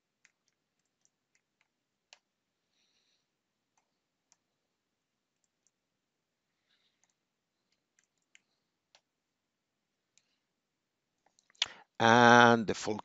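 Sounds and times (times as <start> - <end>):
faint clicks: 6.6 - 9.1.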